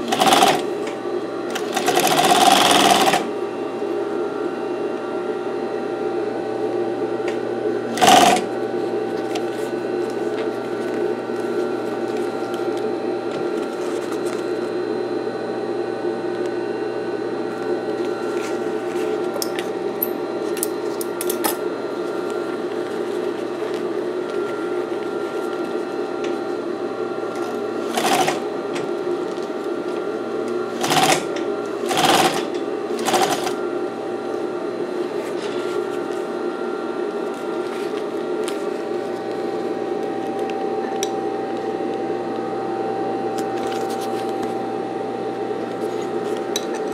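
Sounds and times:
sewing machine running: 0.0s - 0.9s, 1.5s - 3.3s, 7.9s - 8.6s, 27.3s - 29.2s, 30.4s - 33.6s.

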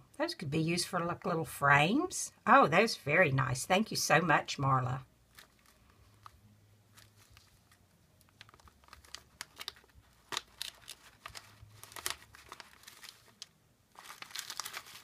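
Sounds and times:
plastic sleeve crinkling: 5.2s - 15.0s.

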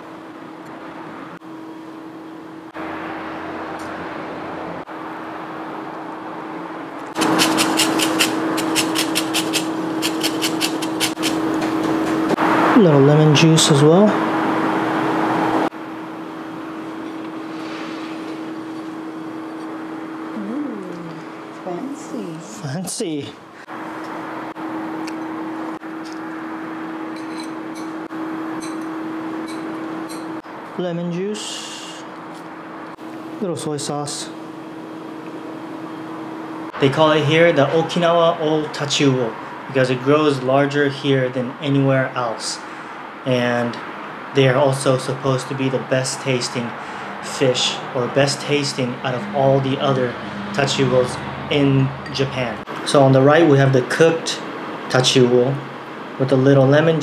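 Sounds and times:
steady electrical hum: 0.0s - 57.0s
lemon scraping on grater: 7.2s - 11.4s.

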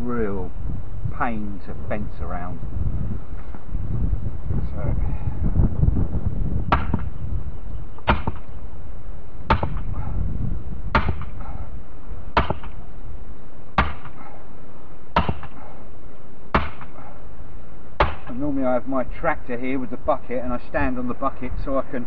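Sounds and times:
fence post being hammered: 6.7s - 7.1s, 8.0s - 8.5s, 9.5s - 9.9s, 10.9s - 11.4s, 12.4s - 12.8s, 13.8s - 14.2s, 15.2s - 15.6s, 16.5s - 17.0s, 18.0s - 18.4s.

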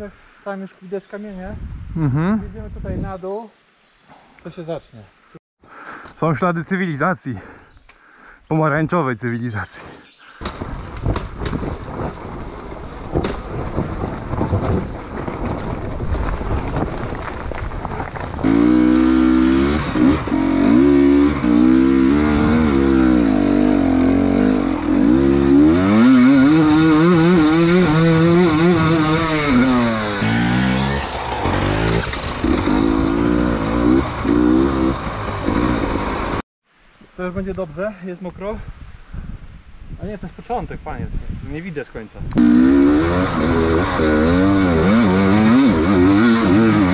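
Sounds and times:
motorcycle engine revving: 18.4s - 36.4s, 42.4s - 46.9s.

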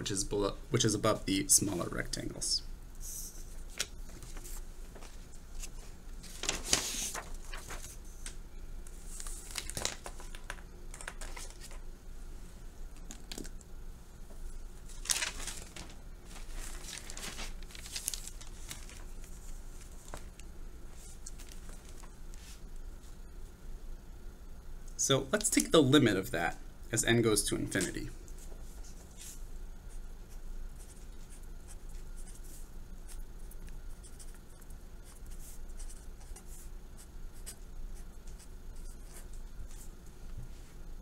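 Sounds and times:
faint low hum: 0.0s - 41.0s
paper rustling and crinkling: 3.7s - 11.8s, 14.8s - 22.6s.

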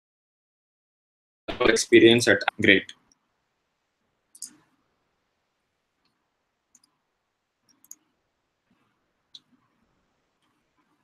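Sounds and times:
computer mouse clicks: 4.4s - 4.7s, 6.0s - 7.0s, 7.6s - 8.1s.

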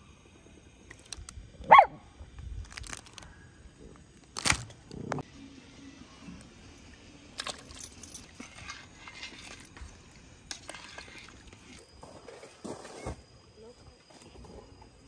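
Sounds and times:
dog barking: 1.7s - 2.0s
dog yipping: 1.7s - 2.0s.

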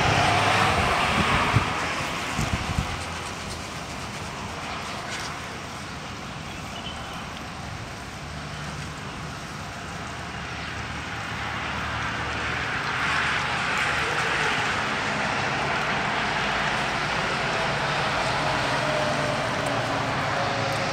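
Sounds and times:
wind gusts buffeting microphone: 0.0s - 6.4s.

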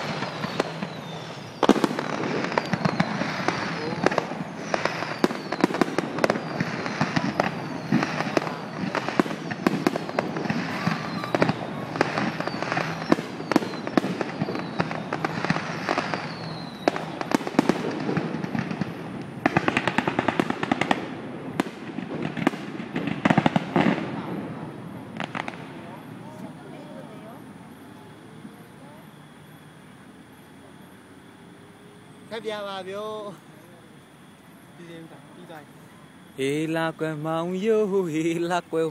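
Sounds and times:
rapid crackling pops: 0.0s - 26.4s
firework shells bursting: 0.0s - 26.6s
firework whistles: 0.0s - 38.9s.

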